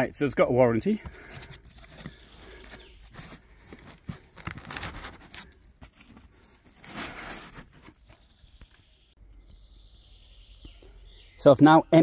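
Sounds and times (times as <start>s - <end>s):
packaging rustling and scraping: 1.2s - 8.2s.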